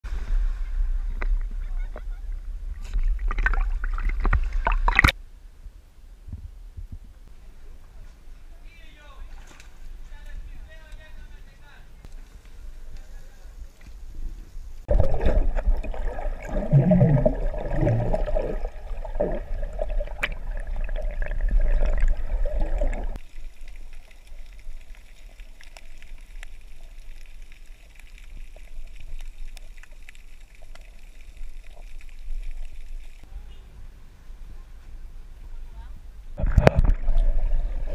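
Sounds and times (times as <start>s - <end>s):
underwater bubbling and churning: 0.1s - 5.2s, 14.7s - 33.3s, 36.4s - 37.9s
faint ticks: 23.2s - 33.3s.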